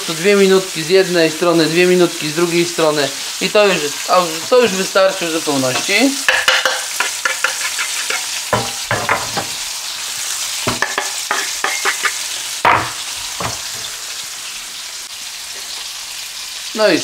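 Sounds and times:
meat sizzling in a frying pan: 0.0s - 17.0s
spatula scraping and knocking pan: 5.7s - 9.6s, 10.6s - 13.9s.

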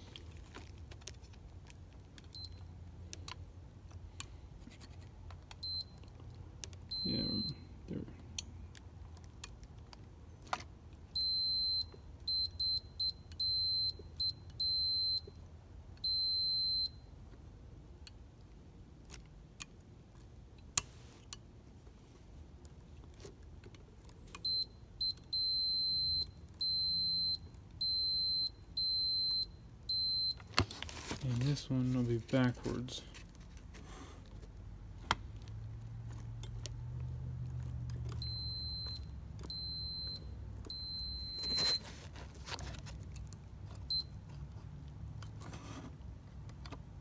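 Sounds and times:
multimeter continuity beep: 2.3s - 2.7s, 5.6s - 6.0s, 6.9s - 7.7s, 11.1s - 15.4s, 16.0s - 17.1s, 24.4s - 30.5s, 38.2s - 41.9s, 43.9s - 44.2s.

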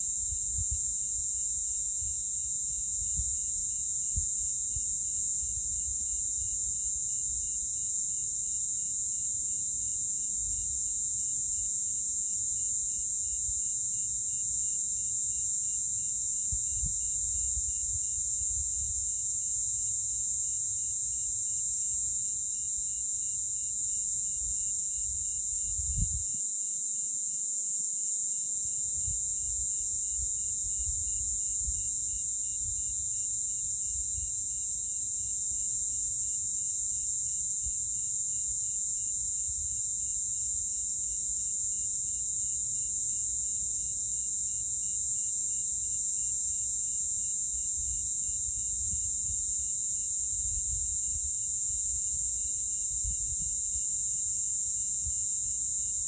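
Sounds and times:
wind rumble on microphone: 0.0s - 7.7s, 16.4s - 19.2s, 24.3s - 26.4s, 28.8s - 34.4s, 39.3s - 39.8s, 47.6s - 54.2s
cicadas buzzing: 0.0s - 26.4s, 28.3s - 56.0s.

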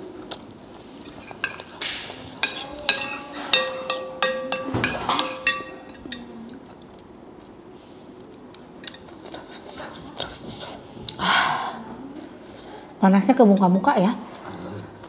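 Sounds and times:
glass bowl clinking: 2.4s - 6.3s.

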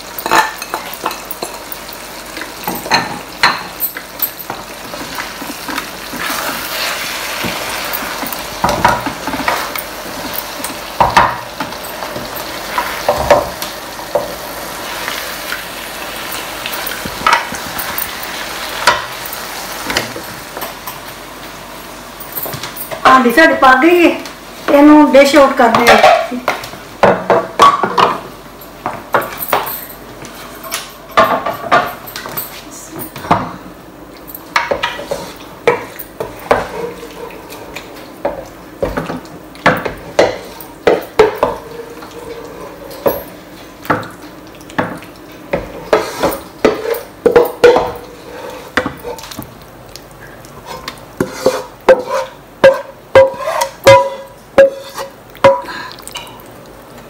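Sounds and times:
spatula scraping a wok: 45.9s - 47.0s, 48.2s - 49.2s, 50.6s - 55.2s.

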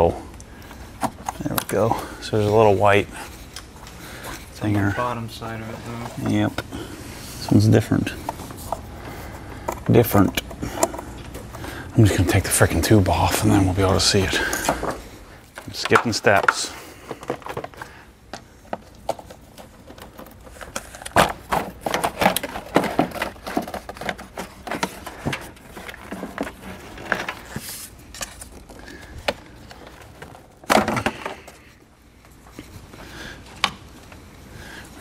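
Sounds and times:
plastic parts clicking and rattling: 9.6s - 11.7s, 14.4s - 31.7s.

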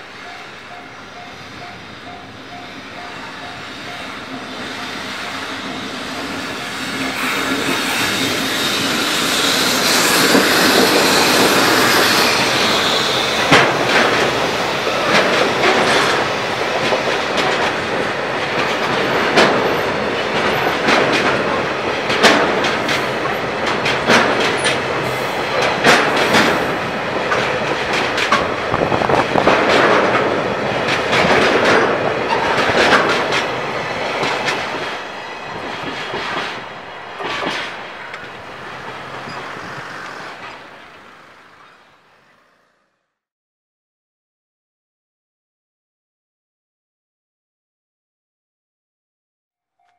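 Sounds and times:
electric locomotive passing: 0.0s - 43.2s
train wheels clacking over rail joints: 0.2s - 41.7s.

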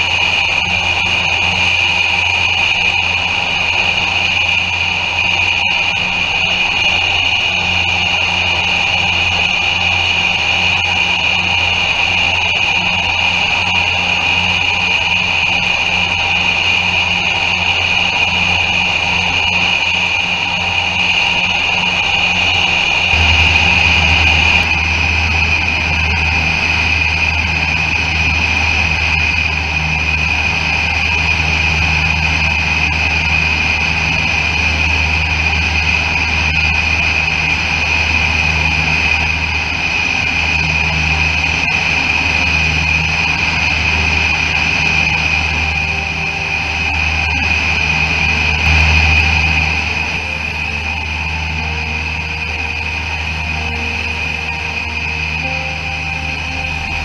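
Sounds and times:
propeller plane engines droning: 0.0s - 57.0s.

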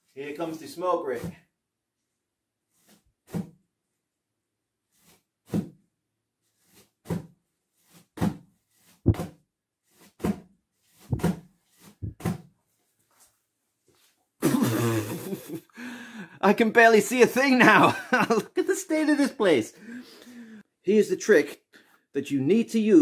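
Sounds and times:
dull thumps of punched bag: 7.1s - 7.4s, 8.2s - 8.5s, 9.1s - 9.4s, 11.1s - 12.5s.

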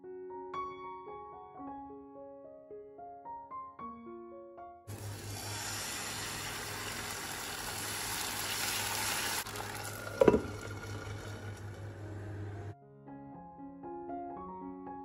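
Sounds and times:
batter sizzling on hot pan: 4.9s - 12.0s
glass lid clunk on pan: 10.1s - 10.7s.

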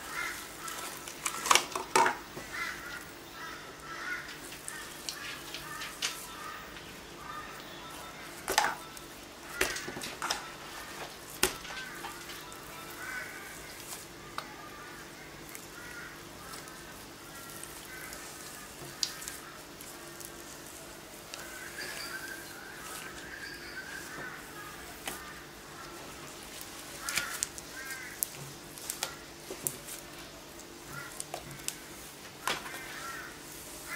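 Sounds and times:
faint chirping calls: 11.6s - 32.1s.

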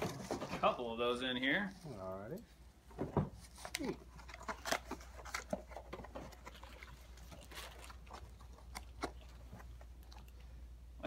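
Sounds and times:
plastic packaging crinkling: 3.5s - 10.4s.

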